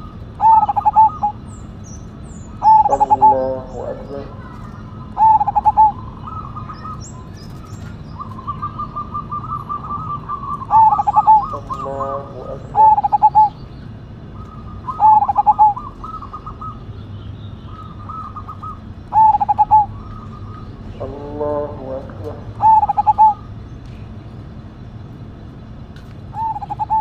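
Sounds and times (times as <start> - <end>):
dove cooing: 0.0 - 1.6, 2.4 - 13.6, 14.2 - 16.9, 17.7 - 23.6, 26.3 - 27.0.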